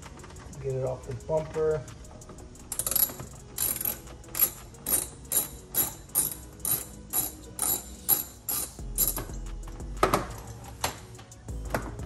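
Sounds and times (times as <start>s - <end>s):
socket ratchet rasping: 2.6s - 9.4s.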